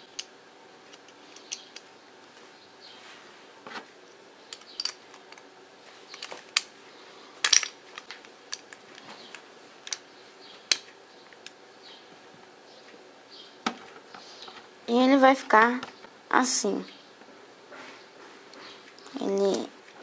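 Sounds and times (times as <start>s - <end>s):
plastic parts clicking together: 6.1s - 6.7s, 7.4s - 10.0s.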